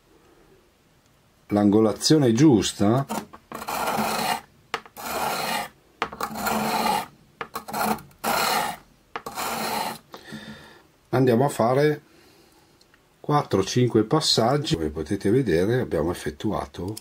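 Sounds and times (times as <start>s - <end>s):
blade scraping on sharpening stone: 3.0s - 10.0s.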